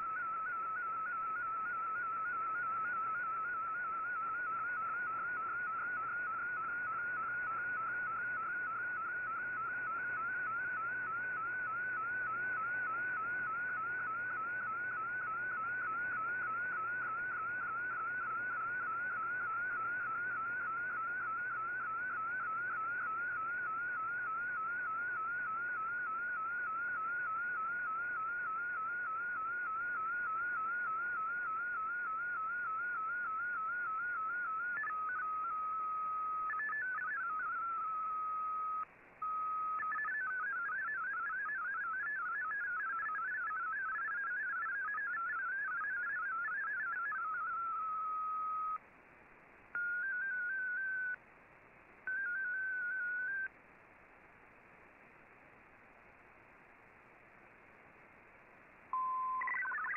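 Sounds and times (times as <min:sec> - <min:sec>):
warbling digital data tones: 0:00.0 - 0:48.8, 0:49.8 - 0:51.2, 0:52.1 - 0:53.5, 0:59.0 - 0:59.9
radio static hiss: 0:00.0 - 0:59.9.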